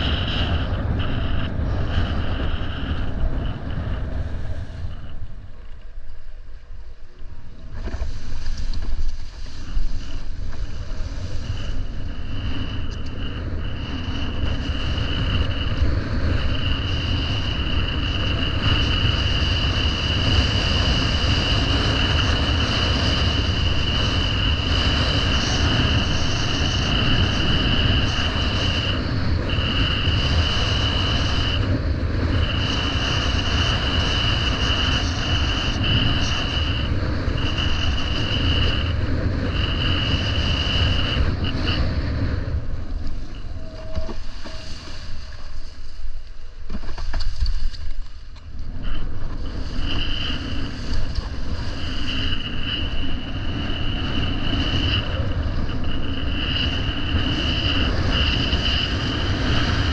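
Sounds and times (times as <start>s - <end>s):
wind buffeting microphone: 0.0s - 59.9s
steady high whistle: 32.3s - 46.0s.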